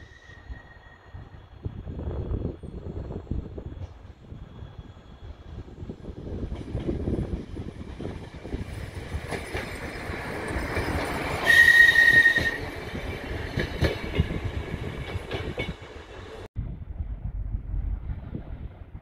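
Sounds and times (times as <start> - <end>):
railbus wheels knocking on rail joints: 12.1 - 16.0.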